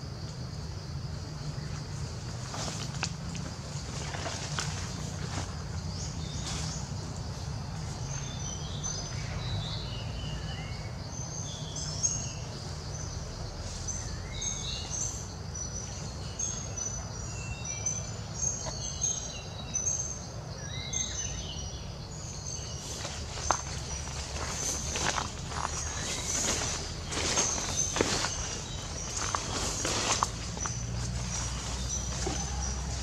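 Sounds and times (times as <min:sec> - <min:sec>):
birds whistling and chirping: 0:13.8 - 0:33.0.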